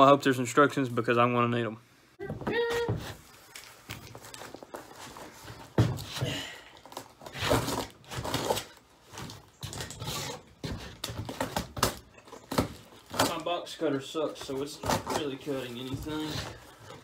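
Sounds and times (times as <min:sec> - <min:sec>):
box cutter scraping cardboard: 0:07.2 - 0:08.8, 0:14.6 - 0:16.9.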